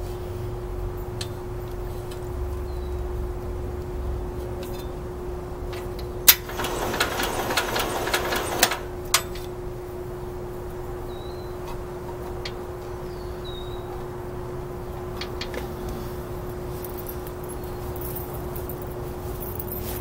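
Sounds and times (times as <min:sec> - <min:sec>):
starter cranking with rattly whir: 0:06.3 - 0:09.2.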